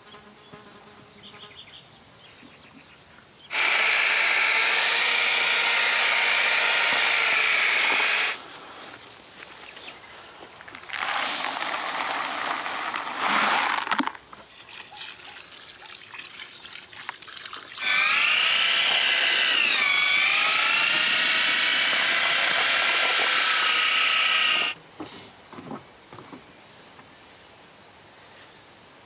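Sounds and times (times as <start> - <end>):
electric drill mixing concrete: 3.5 - 8.4, 10.9 - 14.2, 17.8 - 24.8
bucket pouring into a tub: 10.9 - 17.8.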